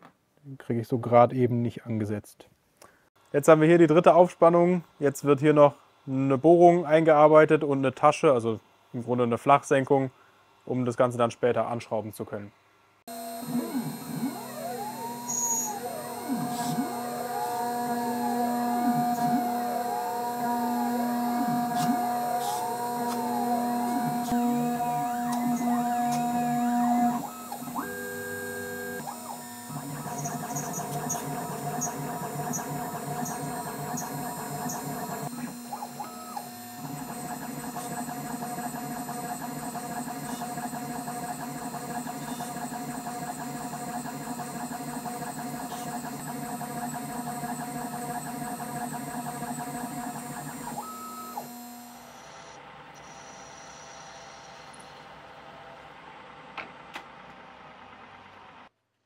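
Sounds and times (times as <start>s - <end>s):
end mill cutting metal: 13.1s - 52.5s
milling machine motor hum: 13.1s - 54.7s.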